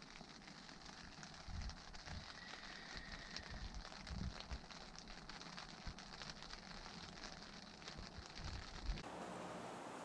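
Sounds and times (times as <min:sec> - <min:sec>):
rain pattering on a tent: 0:00.0 - 0:10.0
steady outdoor hiss: 0:00.0 - 0:10.0.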